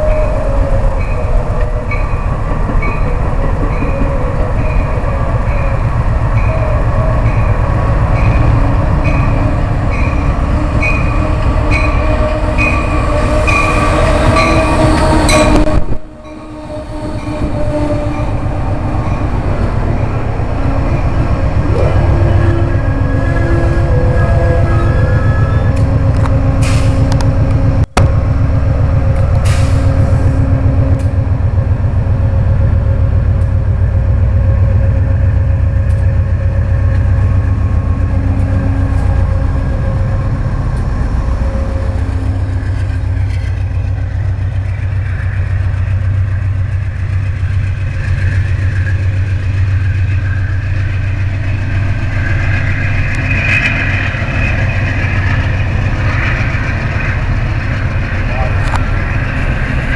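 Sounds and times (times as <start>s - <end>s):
diesel locomotive engine humming: 0.0s - 59.9s.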